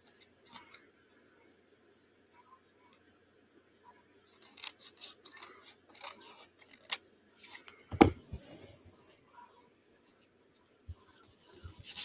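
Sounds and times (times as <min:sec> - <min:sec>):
scissors cutting paper: 0:04.4 - 0:07.6.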